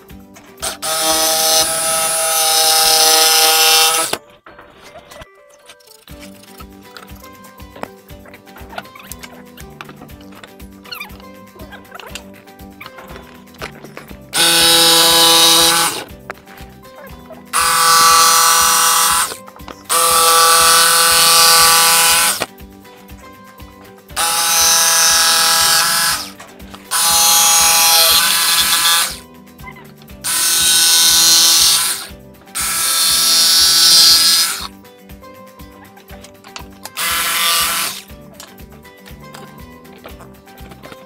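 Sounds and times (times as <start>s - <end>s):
jigsaw cutting plywood: 0.6s - 4.2s, 14.3s - 16.1s, 17.5s - 22.5s, 24.2s - 29.2s, 30.2s - 34.7s, 37.0s - 38.1s.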